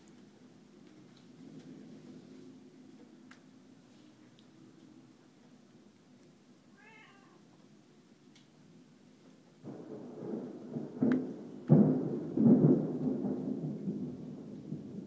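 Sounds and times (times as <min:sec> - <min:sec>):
thunder rumbling and cracking: 0:09.6 - 0:15.0.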